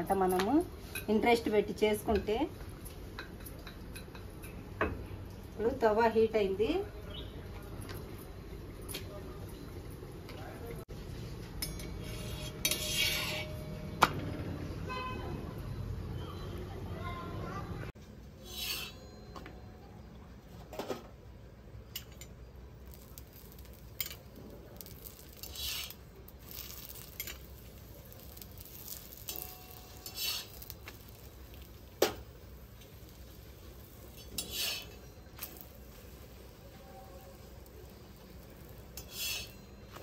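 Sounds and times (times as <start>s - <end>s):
utensil scraping hot griddle: 11.7s - 13.8s, 18.4s - 19.2s, 22.8s - 40.0s.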